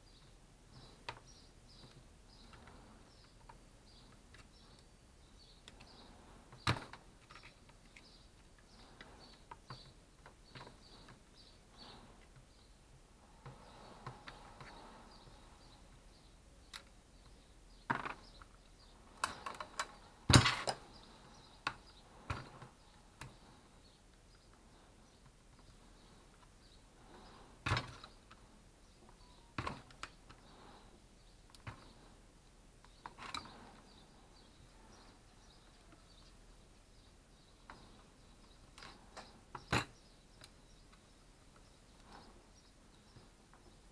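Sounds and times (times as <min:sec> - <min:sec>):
birds chirping: 0:00.0 - 0:43.9
clicks and taps of metal parts: 0:19.2 - 0:20.8.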